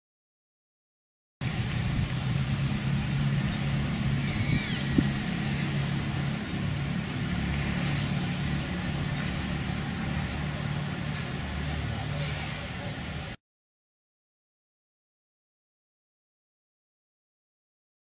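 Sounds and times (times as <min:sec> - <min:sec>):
distant road traffic: 0:01.4 - 0:13.4.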